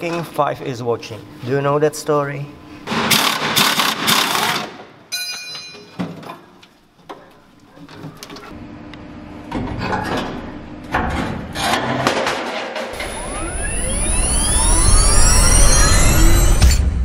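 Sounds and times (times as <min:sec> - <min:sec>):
clanking of metal parts: 0:05.2 - 0:06.5, 0:09.6 - 0:13.1.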